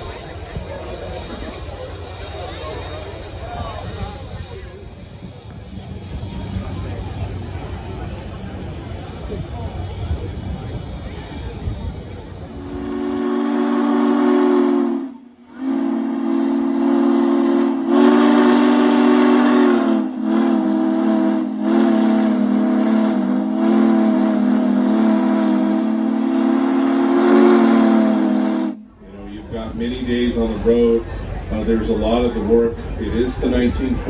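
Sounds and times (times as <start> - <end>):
steam locomotive chime whistle: 12.6 - 29.0.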